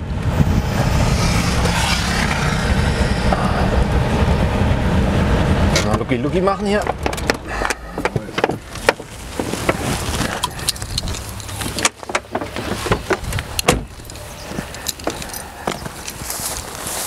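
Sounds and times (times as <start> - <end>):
engine and road rumble: 0.0 - 17.0
clicks and rattles in cabin: 6.7 - 16.2.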